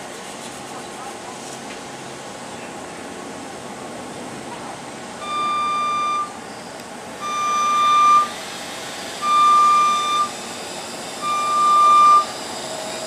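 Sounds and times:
steady background hum: 0.0s - 13.0s
lift motion alarm beeping: 5.2s - 6.6s, 7.2s - 8.5s, 9.1s - 13.0s.

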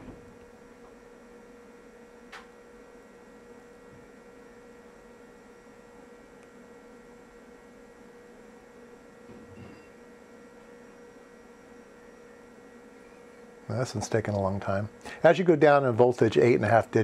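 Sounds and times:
electrical hum: 0.0s - 17.0s
faint steady tone: 2.7s - 13.6s.

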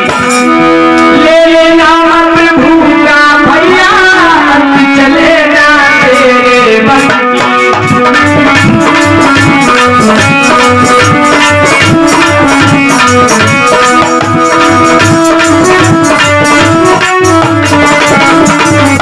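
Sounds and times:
devotional melody line: 0.0s - 19.0s
hand drum beat: 7.0s - 19.0s.

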